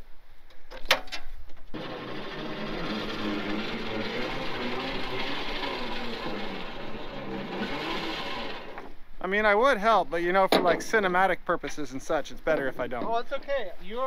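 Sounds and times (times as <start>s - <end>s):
winch running: 1.7s - 9.0s.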